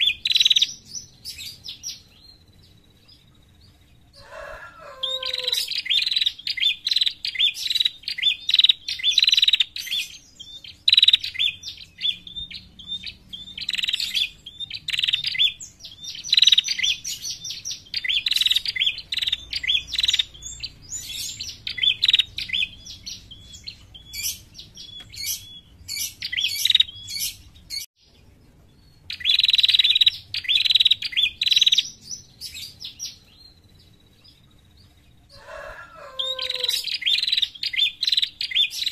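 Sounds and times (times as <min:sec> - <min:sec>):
bird chattering call: 0:04.2 - 0:27.9.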